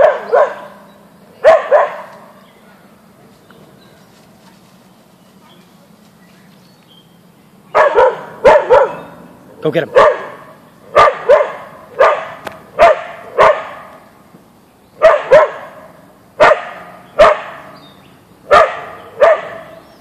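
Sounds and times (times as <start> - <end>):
dog barking: 0.0 - 0.8, 1.4 - 2.3, 7.7 - 9.1, 9.9 - 14.0, 15.0 - 17.8, 18.5 - 19.8.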